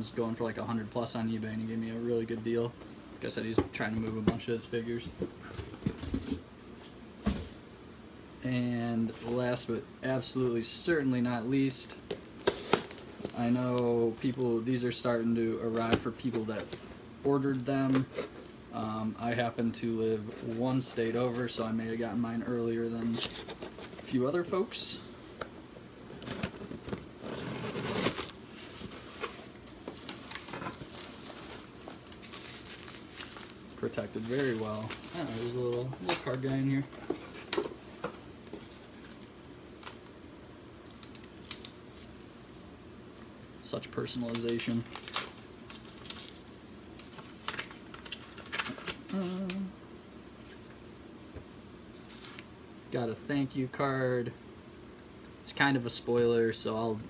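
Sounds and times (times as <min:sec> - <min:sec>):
packing material crinkling: 0:26.2 - 0:37.0, 0:44.0 - 0:49.5
paper crackling: 0:27.8 - 0:36.8.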